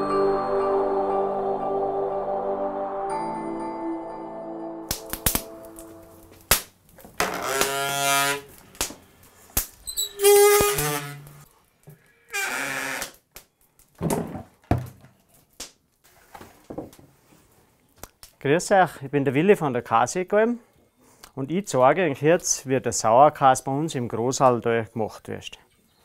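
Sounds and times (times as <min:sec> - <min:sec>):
drawn-out pitched squeaks: 0:09.8 - 0:11.4.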